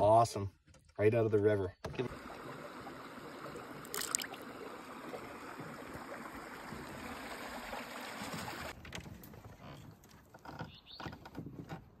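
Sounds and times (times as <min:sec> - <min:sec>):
river water flowing and gurgling: 0:02.1 - 0:08.8.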